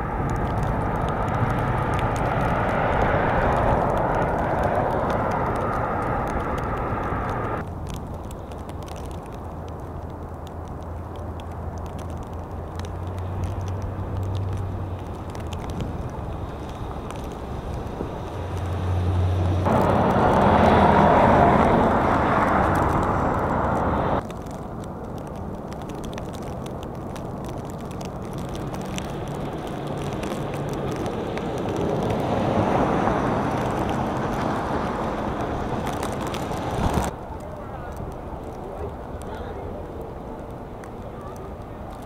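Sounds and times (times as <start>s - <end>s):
cars passing on slushy road: 0.0s - 42.0s
plow truck passing: 0.0s - 42.0s.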